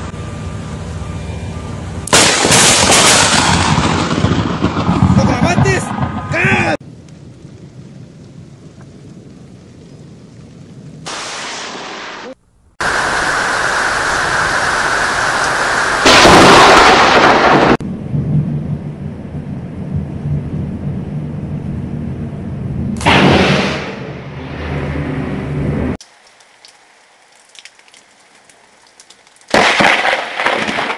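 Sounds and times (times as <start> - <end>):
low thunder rumble: 1.8 - 26.0
loud thunderclap: 2.1 - 9.4, 10.7 - 21.2, 22.8 - 24.7, 29.5 - 30.9
heavy rain: 2.1 - 20.9, 25.9 - 30.9.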